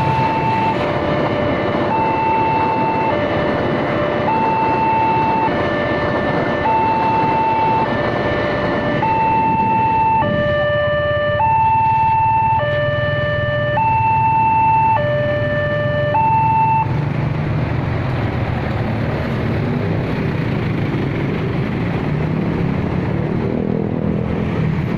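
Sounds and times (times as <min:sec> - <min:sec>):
two-tone crossing warning alarm: 0:00.0 - 0:16.9
truck engine: 0:00.0 - 0:24.9.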